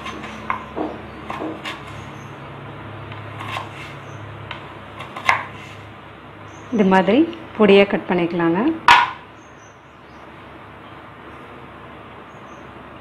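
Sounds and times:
knife knocking on wooden board: 0.5 - 1.7, 8.9 - 9.2.

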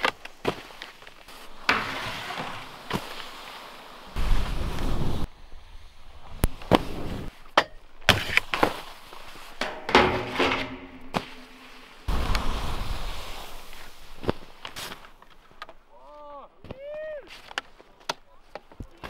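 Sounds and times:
skis clacking on rails: 0.0 - 5.3, 6.4 - 19.0
skis scraping over snow: 0.0 - 7.4, 8.1 - 9.6, 11.2 - 15.6.

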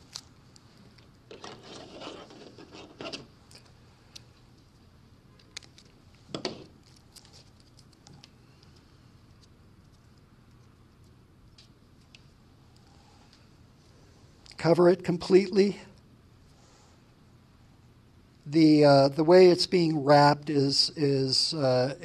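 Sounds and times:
rubber band handling rustles: 5.4 - 10.0.

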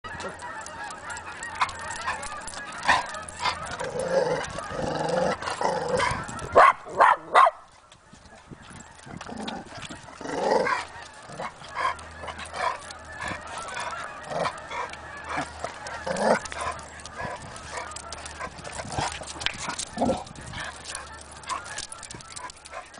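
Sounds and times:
dogs yipping and barking: 0.1 - 22.9
loud sharp dog barks: 6.6 - 7.6.

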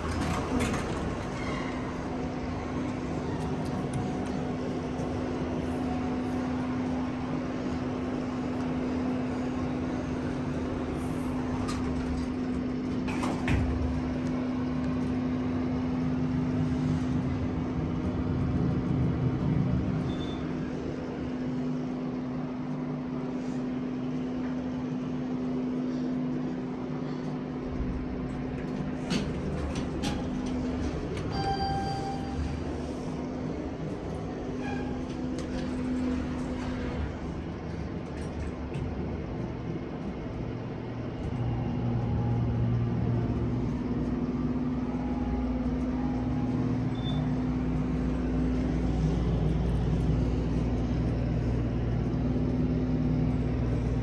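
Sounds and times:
hydraulic elevator hum: 0.0 - 54.0
short electronic beep: 31.3 - 32.5.

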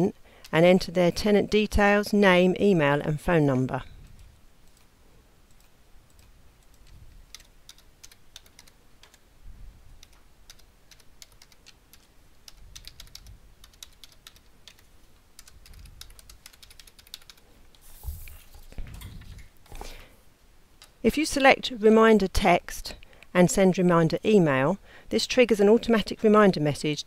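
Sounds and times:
keyboard typing: 5.5 - 9.2, 10.0 - 17.8.

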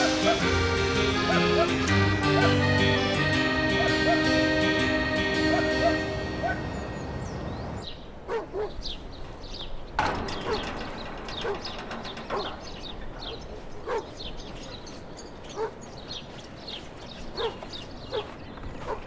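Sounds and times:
dog barking: 0.0 - 0.5, 1.3 - 2.6, 5.5 - 6.7, 8.2 - 8.9, 13.8 - 14.2, 15.5 - 15.8, 17.4 - 19.0.

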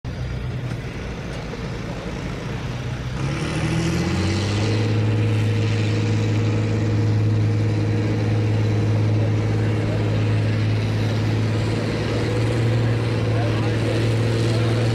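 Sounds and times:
tractor engine revving: 0.1 - 14.9.

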